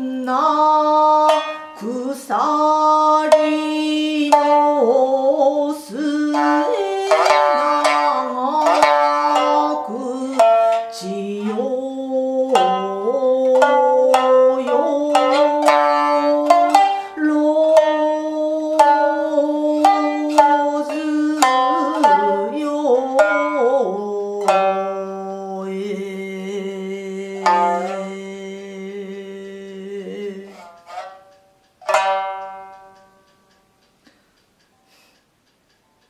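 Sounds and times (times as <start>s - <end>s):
plucked shamisen notes: 0.0s - 34.1s.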